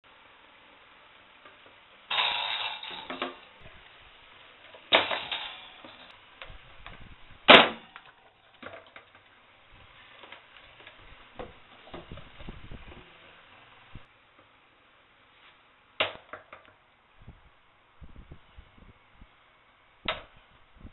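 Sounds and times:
plastic fan hard knocks: 0:20.1 - 0:20.3.

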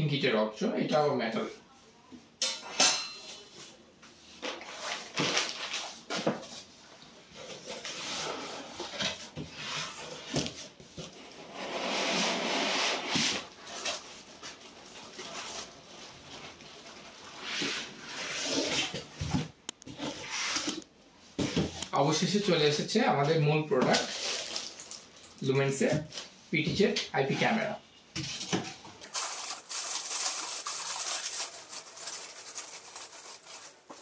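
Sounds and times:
polystyrene foam scraping: 0:11.2 - 0:19.0, 0:20.0 - 0:20.8, 0:23.9 - 0:25.0, 0:29.0 - 0:34.0.

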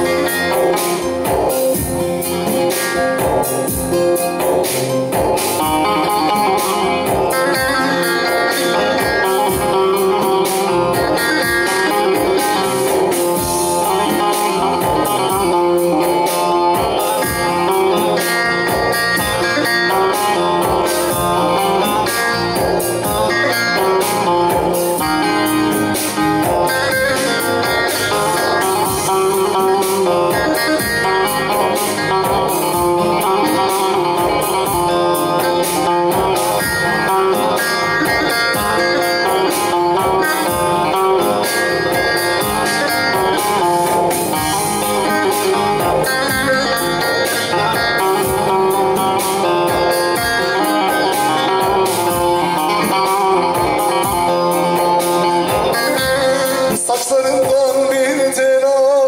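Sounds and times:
electric saz folk tune: 0:00.0 - 0:59.0
electronic keyboard: 0:00.0 - 0:59.0.

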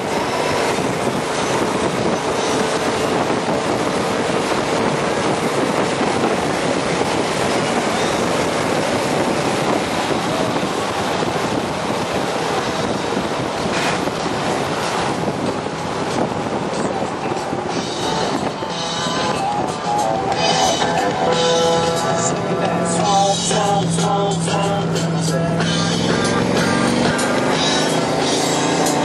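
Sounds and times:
car engine running: 0:00.0 - 0:29.0
wind buffeting microphone: 0:00.0 - 0:29.0.

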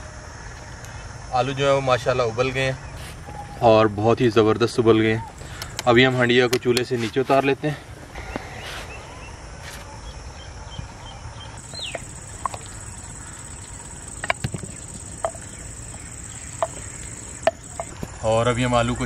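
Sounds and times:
insect buzzing: 0:11.6 - 0:18.2.

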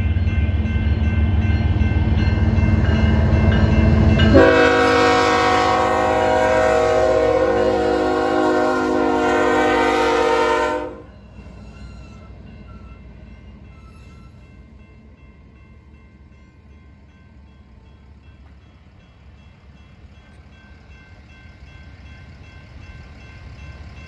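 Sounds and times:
diesel locomotive rumbling: 0:00.0 - 0:24.0
locomotive air horn blast: 0:04.3 - 0:11.1.

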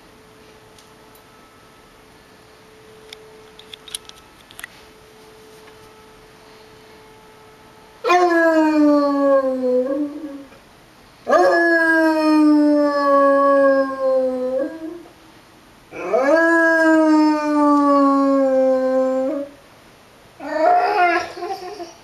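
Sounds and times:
dog howling: 0:08.0 - 0:10.6, 0:11.3 - 0:15.1, 0:15.9 - 0:19.6, 0:20.4 - 0:22.0.

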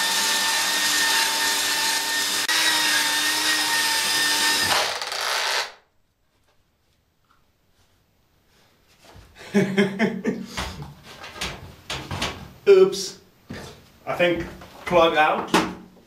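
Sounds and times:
belt sander sanding wood: 0:00.0 - 0:04.7.

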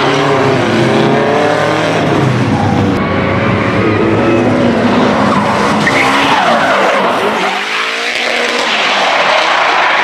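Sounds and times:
car engine revving high: 0:00.0 - 0:10.0
tyres screeching: 0:02.5 - 0:10.0.

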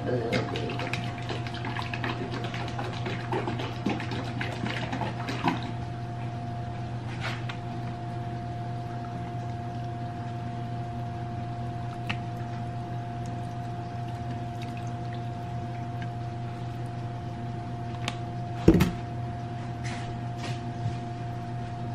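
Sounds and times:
steady low hum: 0:00.0 - 0:21.9
liquid sloshing in shaken bottle: 0:00.2 - 0:05.8.

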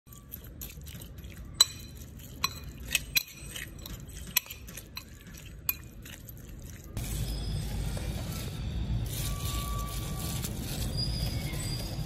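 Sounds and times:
soft wet mixing: 0:00.0 - 0:08.1
spoon clinking against metal bowl: 0:00.1 - 0:06.8.

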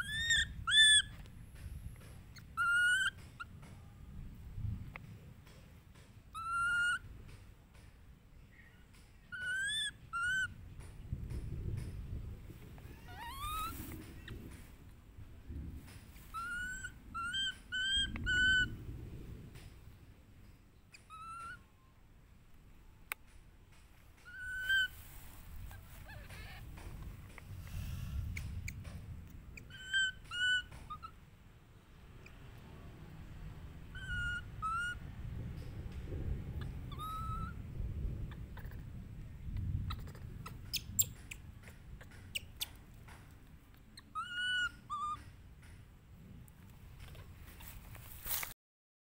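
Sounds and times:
baby monkey whistle-like cries: 0:00.0 - 0:01.1, 0:02.4 - 0:03.5, 0:06.3 - 0:07.0, 0:09.3 - 0:10.6, 0:12.9 - 0:13.8, 0:16.3 - 0:18.7, 0:20.9 - 0:21.7, 0:24.2 - 0:25.0, 0:29.6 - 0:31.2, 0:33.9 - 0:35.0, 0:36.6 - 0:37.6, 0:44.0 - 0:45.2.

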